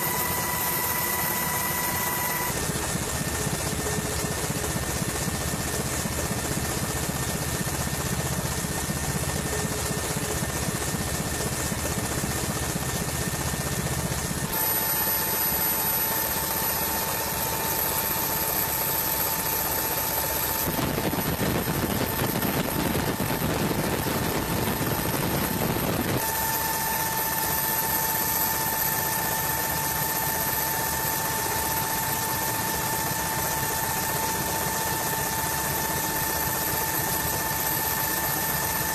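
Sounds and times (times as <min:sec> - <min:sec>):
high whine: 0:00.0 - 0:03.3, 0:14.4 - 0:38.9
helicopter engine and rotor: 0:00.0 - 0:38.9.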